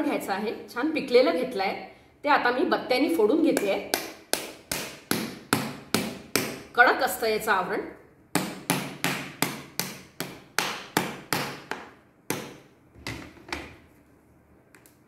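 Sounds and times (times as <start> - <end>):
pestle knocking on hard fruit shell: 3.9 - 6.6, 8.3 - 12.7.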